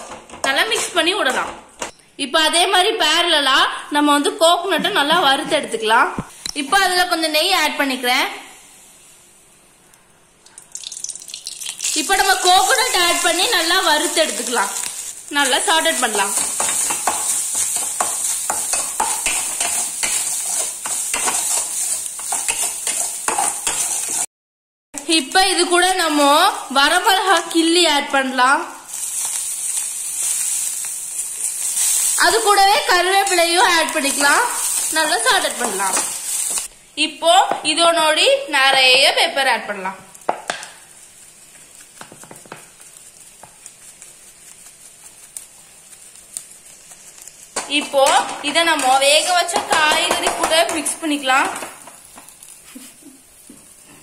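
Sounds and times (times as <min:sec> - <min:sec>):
coconut sizzling in ghee: 0:06.2 - 0:24.3, 0:25.0 - 0:54.0
metal spatula scraping pan: 0:16.2 - 0:24.3.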